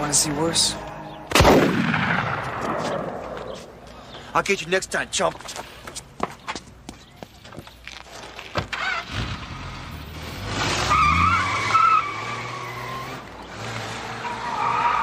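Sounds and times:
tyres squealing: 10.7s - 15.0s.

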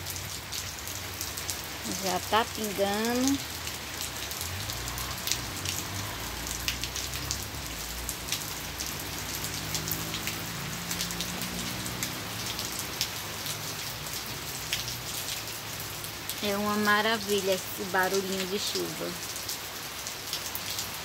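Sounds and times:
rain falling on concrete: 0.0s - 21.0s.

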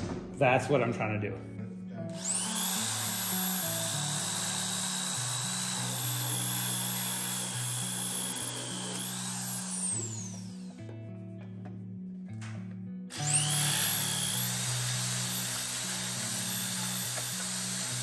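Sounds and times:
background music: 0.0s - 18.0s
power tool whining: 2.1s - 10.9s, 13.1s - 18.0s.

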